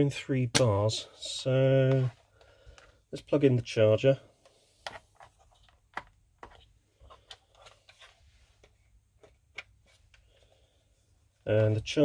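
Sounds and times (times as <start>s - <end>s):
plastic clicks and cable rustling: 4.4s - 10.4s.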